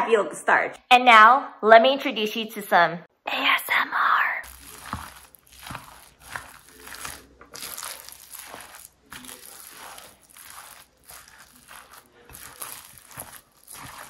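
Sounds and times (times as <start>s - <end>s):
spatula mashing wet filling: 4.4s - 14.0s.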